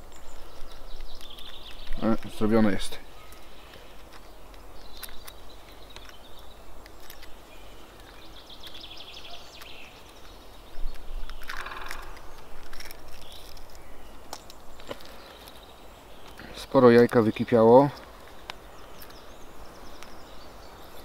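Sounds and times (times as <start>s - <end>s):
high bird calls: 0.0s - 21.0s
fingers picking eggshell: 0.6s - 17.3s
rattling bird call: 11.4s - 13.5s.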